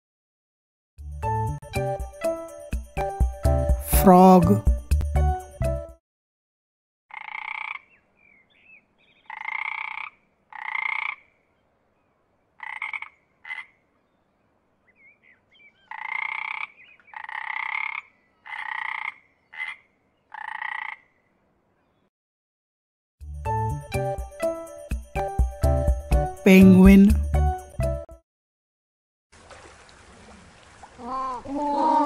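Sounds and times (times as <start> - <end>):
frog croaking: 7.1 - 7.9, 9.3 - 11.3, 12.6 - 13.8, 15.9 - 21.2.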